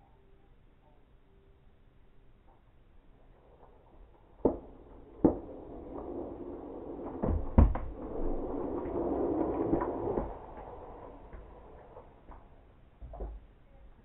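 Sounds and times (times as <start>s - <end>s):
skateboard wheels rolling: 2.4s - 14.0s
skateboard hitting floor: 3.2s - 13.6s.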